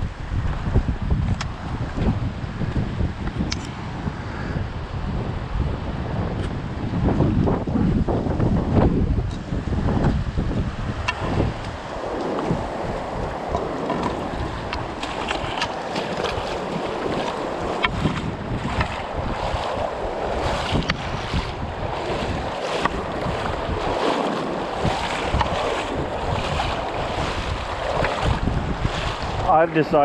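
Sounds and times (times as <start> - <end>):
wind buffeting microphone: 0.0 - 30.0
small water splashes: 11.0 - 30.0.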